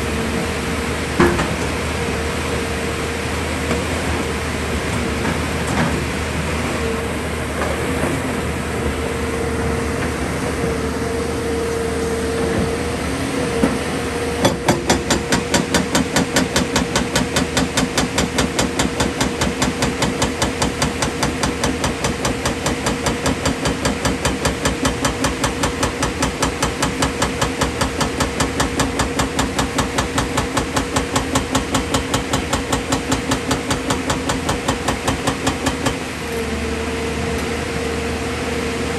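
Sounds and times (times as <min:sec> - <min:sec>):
hydraulic rock breaker hammering: 0:14.4 - 0:36.4.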